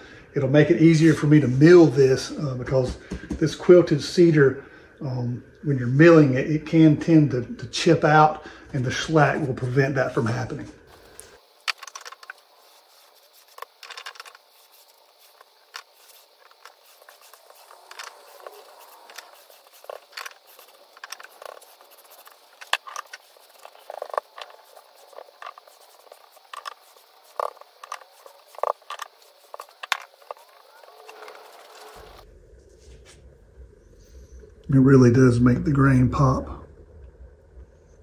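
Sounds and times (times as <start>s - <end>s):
brush strokes on wood: 9.1s - 33.3s.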